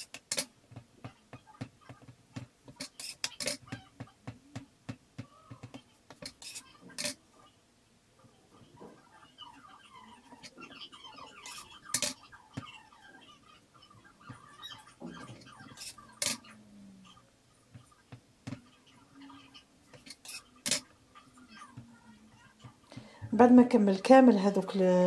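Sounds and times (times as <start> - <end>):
light scraping of dough: 2.8 - 3.7, 6.1 - 7.2, 15.2 - 16.4, 19.9 - 20.9.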